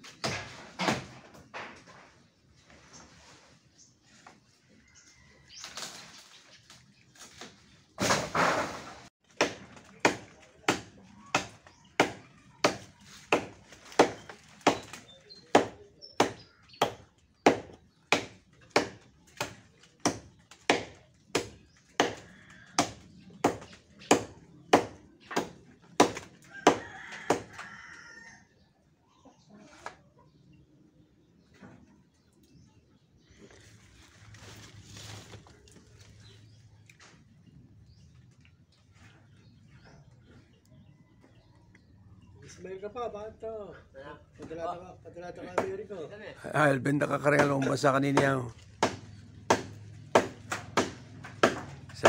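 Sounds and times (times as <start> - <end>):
blade chopping branch: 7.2 - 26.8, 47.4 - 52.0.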